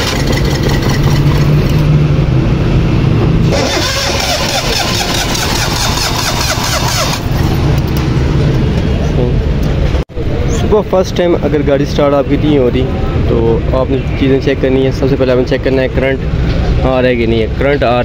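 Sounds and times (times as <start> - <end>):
car engine droning: 0.0 - 10.5.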